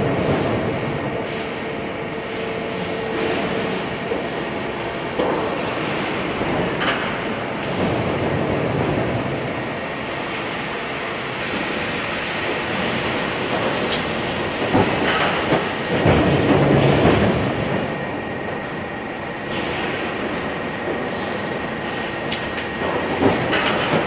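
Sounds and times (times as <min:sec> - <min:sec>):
industrial machinery rumbling: 0:00.0 - 0:24.0
heavy mechanical knocks: 0:14.7 - 0:17.8.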